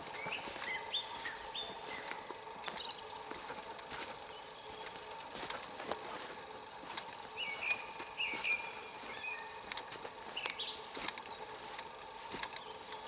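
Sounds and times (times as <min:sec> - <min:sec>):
footsteps on forest floor: 0:00.0 - 0:13.0
songbird singing: 0:00.0 - 0:13.0.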